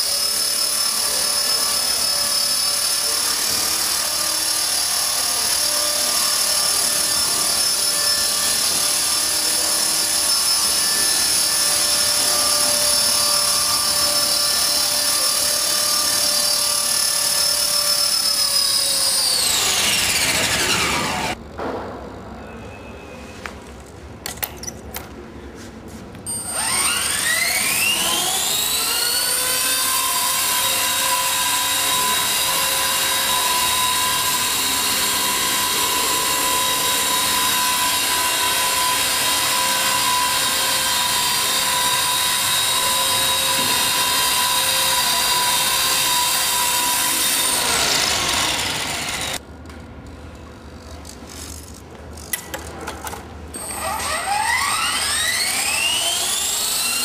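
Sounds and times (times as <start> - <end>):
model helicopter motor whine: 0.0 - 21.4, 26.3 - 45.6.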